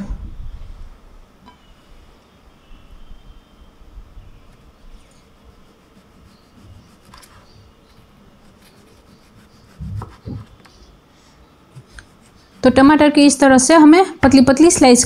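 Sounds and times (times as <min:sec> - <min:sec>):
knife cutting tomato on board: 0:08.5 - 0:10.6.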